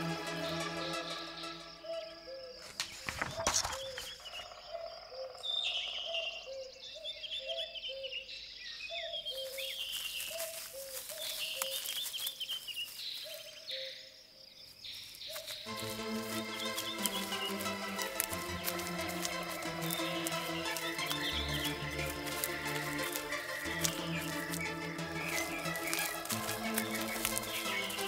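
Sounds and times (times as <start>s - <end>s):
high insect trill: 0.0s - 4.6s, 9.5s - 28.0s
birds chirping: 0.0s - 28.0s
loud rustle: 15.4s - 28.0s.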